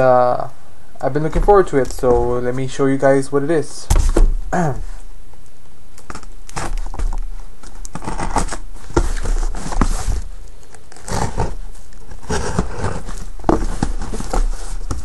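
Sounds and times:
cardboard scraping rustling and knocks: 1.2s - 2.4s, 3.9s - 4.5s, 6.6s - 7.3s, 7.9s - 10.3s, 10.9s - 15.0s.

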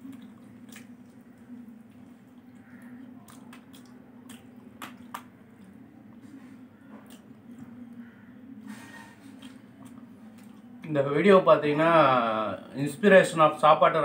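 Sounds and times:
wet chewing and lip-smacking: 0.0s - 6.3s, 6.9s - 8.0s, 9.2s - 10.9s.

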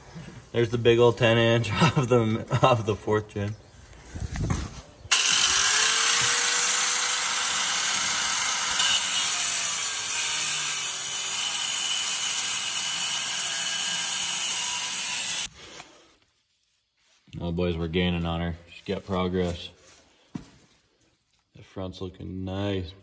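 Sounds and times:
angle grinder grinding steel: 5.1s - 15.5s.

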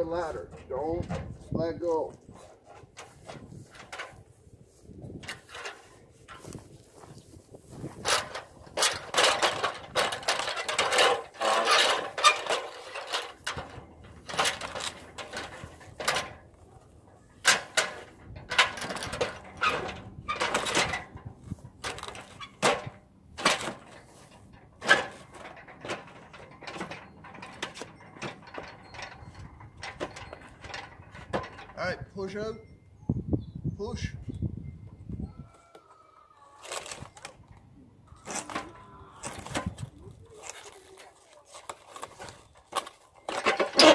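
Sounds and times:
metal ladder clanking and scraping: 0.0s - 32.0s, 38.2s - 43.9s
footfalls climbing ladder: 5.1s - 31.8s, 38.2s - 43.9s.

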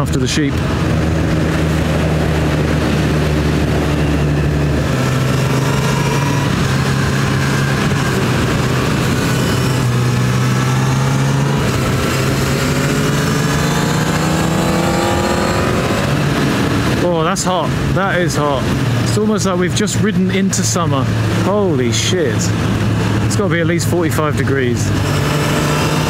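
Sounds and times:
motorcycle engine running: 0.0s - 26.0s
wind rushing: 0.6s - 19.1s.

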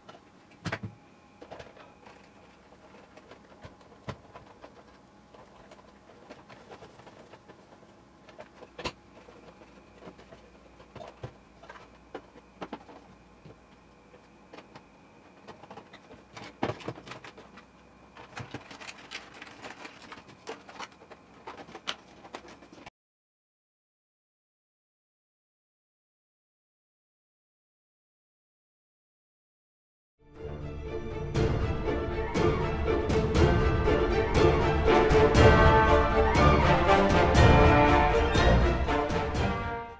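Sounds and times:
plastic parts clicking and knocking: 0.0s - 22.9s.

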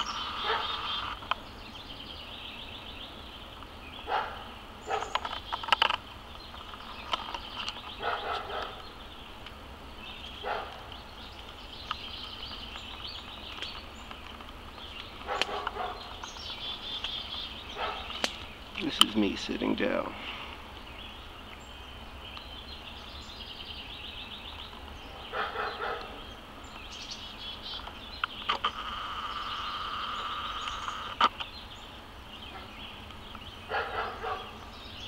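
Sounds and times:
insect trilling: 28.4s - 31.3s.

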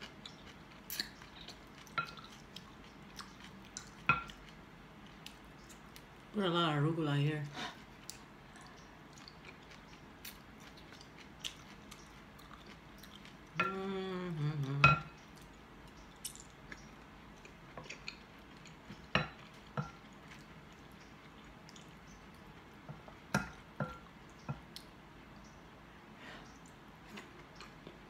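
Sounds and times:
chewing: 0.0s - 6.1s, 7.7s - 14.0s, 14.6s - 24.9s, 26.4s - 28.0s
person humming: 13.6s - 15.0s.

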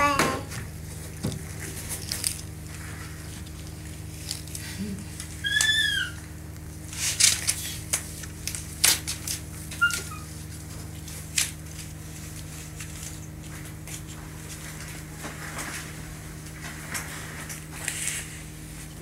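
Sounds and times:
steady low hum: 0.0s - 19.0s
clicks and rustles: 1.1s - 5.8s, 6.9s - 18.3s
monkey chirp: 5.4s - 6.2s, 9.8s - 10.3s
monkey squealing: 5.4s - 6.2s, 9.8s - 10.3s.

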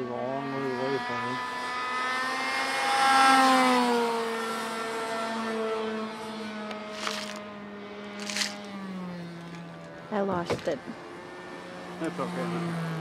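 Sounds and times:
model airplane engine buzzing: 0.0s - 13.0s
brief rustle: 6.9s - 7.4s, 8.2s - 8.7s.

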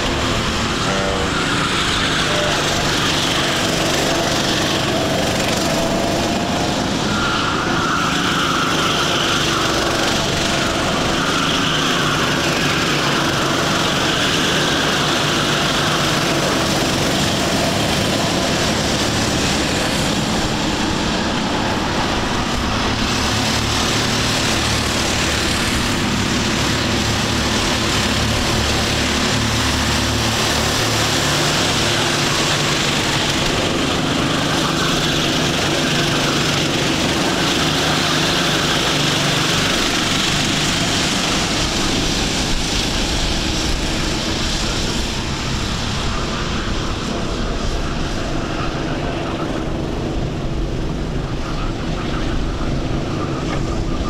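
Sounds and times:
go-kart engines racing past: 0.0s - 54.0s.

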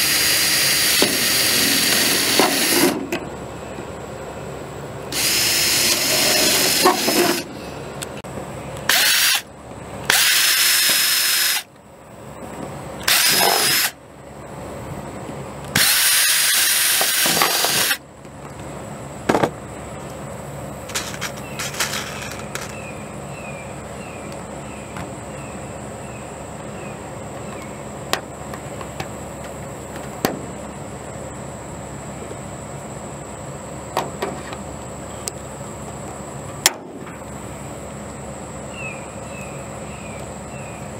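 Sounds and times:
cordless drill driving screws: 0.0s - 3.0s, 5.1s - 7.5s, 8.9s - 9.4s, 10.1s - 11.7s, 13.1s - 14.0s, 15.8s - 18.0s.

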